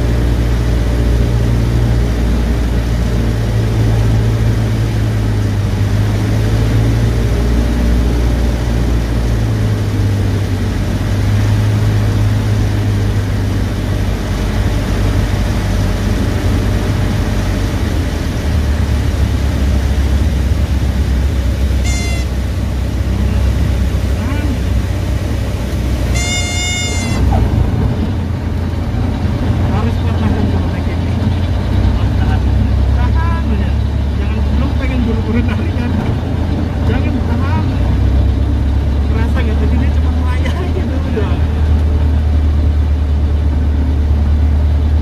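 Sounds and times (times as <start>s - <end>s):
airplane engine droning: 0.0s - 45.0s
brief high chirp: 21.9s - 22.3s.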